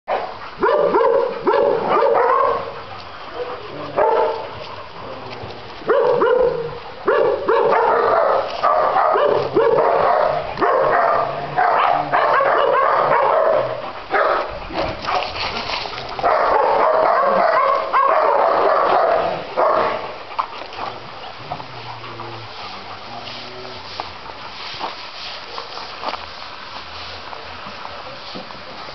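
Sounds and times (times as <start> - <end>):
dogs barking and yipping: 0.1 - 23.1.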